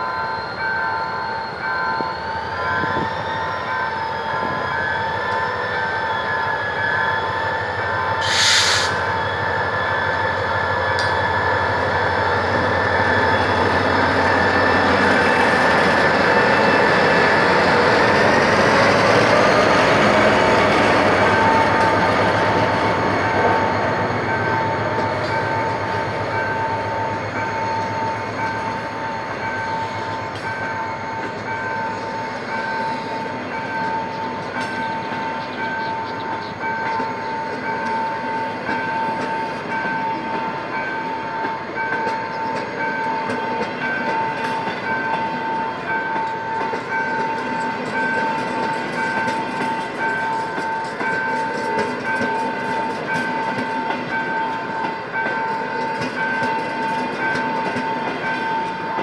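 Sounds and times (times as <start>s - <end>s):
level-crossing alarm pulsing: 0.0s - 59.0s
train wheels rolling: 0.1s - 59.0s
short hiss: 8.2s - 9.0s.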